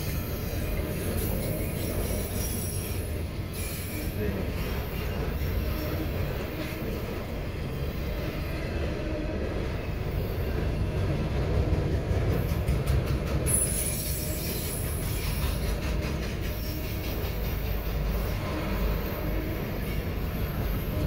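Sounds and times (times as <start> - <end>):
high wheel squeal: 0.0 - 7.0, 13.5 - 15.7, 16.4 - 21.0
train wheels rumbling on rail: 0.0 - 21.0.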